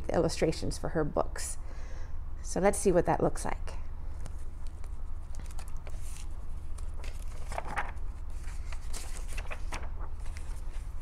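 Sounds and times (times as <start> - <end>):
steady low hum: 0.0 - 11.0
book pages rustling: 4.2 - 11.0.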